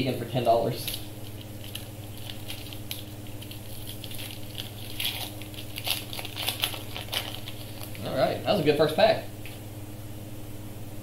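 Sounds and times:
foil wrapper crinkling: 0.8s - 8.2s.

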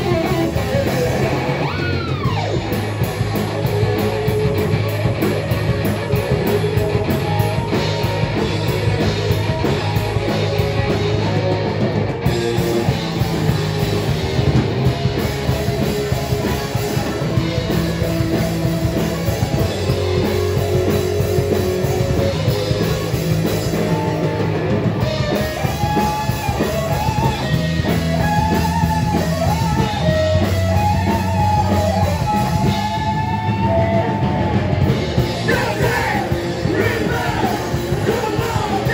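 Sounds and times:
guitar melody with bending notes: 0.0s - 38.9s
metal band playing: 0.0s - 38.9s.

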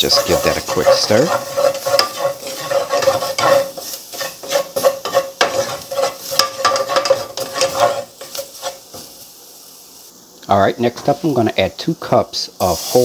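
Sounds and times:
wooden spatula scraping a pot: 0.0s - 9.1s
garlic and onions sizzling: 0.0s - 13.0s.

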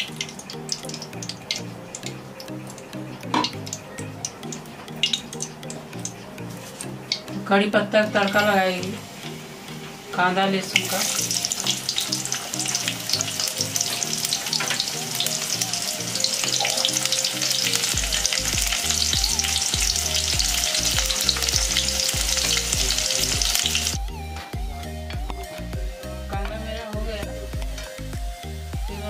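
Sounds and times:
onion and garlic sizzling in oil: 0.0s - 4.4s, 8.1s - 24.0s, 26.3s - 29.0s
background music with steady beat: 0.0s - 29.0s.

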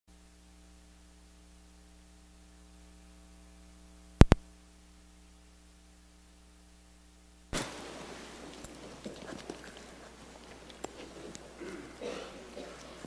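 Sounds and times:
mains hum: 0.1s - 13.0s
microphone clicks: 4.2s - 4.5s.

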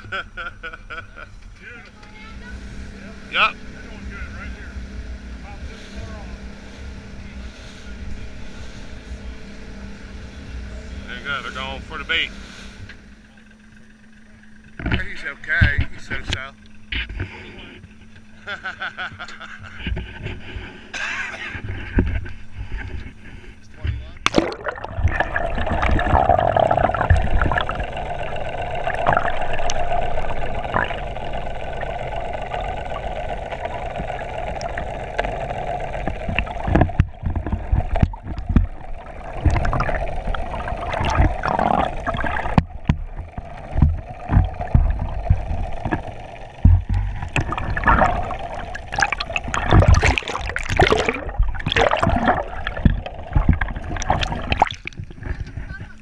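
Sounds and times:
steady hum: 0.0s - 56.0s
knocks and splashes: 23.8s - 31.0s, 36.0s - 56.0s
water gurgling underwater: 24.2s - 55.9s.

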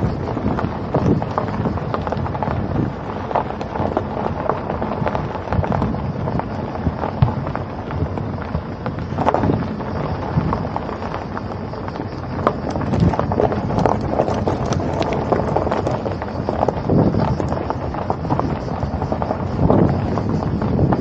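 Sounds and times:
irregular crackling: 0.0s - 21.0s
low road rumble: 0.0s - 21.0s
wind buffeting microphone: 0.0s - 21.0s.

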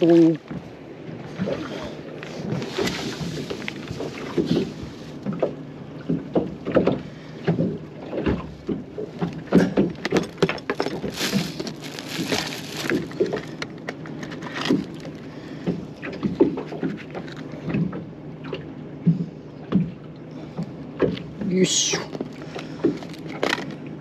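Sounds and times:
boat knocking on water: 4.0s - 17.0s
fishing tackle clicks and rustles: 9.1s - 17.7s, 22.1s - 23.9s.

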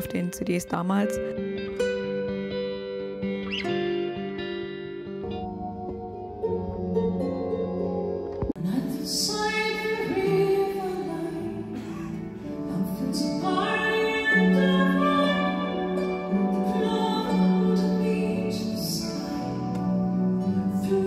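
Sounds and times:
woman singing slow melody: 8.6s - 21.0s.

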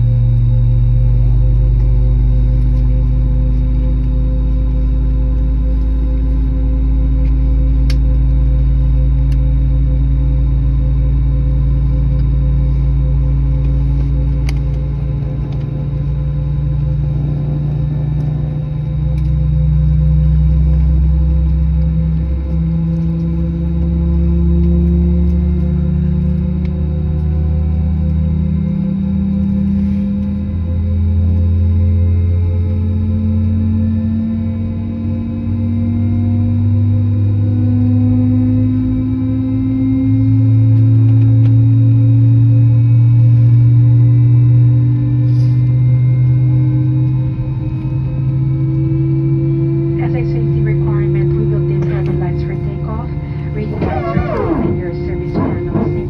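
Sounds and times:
jet engines idling in cabin: 0.0s - 56.0s
steady hum tones: 0.0s - 56.0s
air-conditioning airflow: 10.6s - 33.6s, 42.2s - 56.0s.

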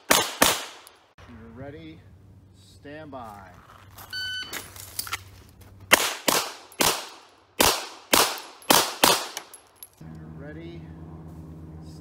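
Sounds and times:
handgun shots: 0.0s - 0.9s, 5.9s - 9.6s.

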